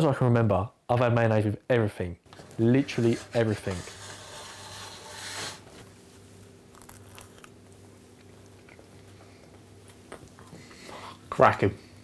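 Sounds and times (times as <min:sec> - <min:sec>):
biting and chewing: 0:06.7 - 0:09.2.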